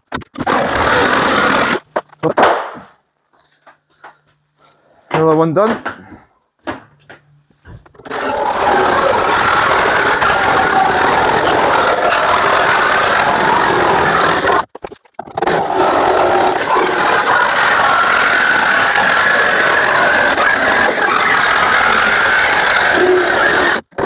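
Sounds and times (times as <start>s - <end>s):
reciprocating saw cutting metal: 0.4s - 1.8s, 8.0s - 14.7s, 15.3s - 24.0s.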